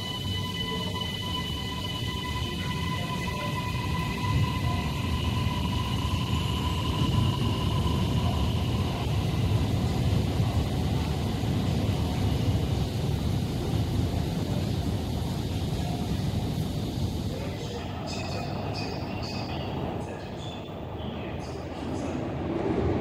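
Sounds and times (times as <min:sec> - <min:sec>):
high steady tone: 0:00.0 - 0:09.2
train rumbling: 0:00.0 - 0:23.0.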